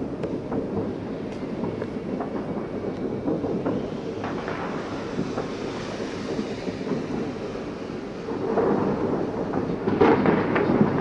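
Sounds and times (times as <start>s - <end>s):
sharp firework cracks: 3.4s - 11.0s.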